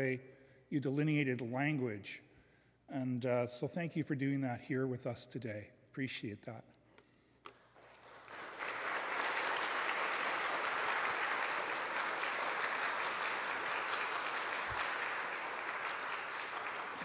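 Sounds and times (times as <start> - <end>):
crowd applauding: 7.8 - 17.0.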